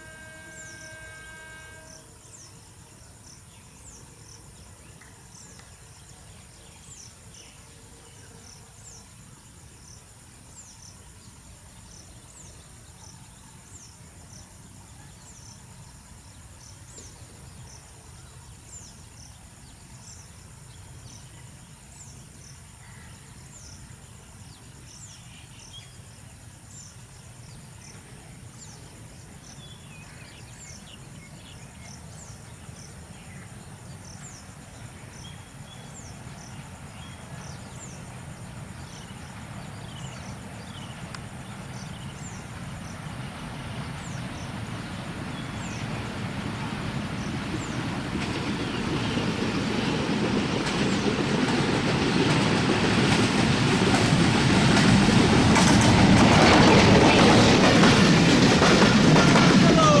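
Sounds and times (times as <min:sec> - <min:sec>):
insect drone: 0:00.0 - 1:00.0
diesel locomotive rumble: 0:36.2 - 1:00.0.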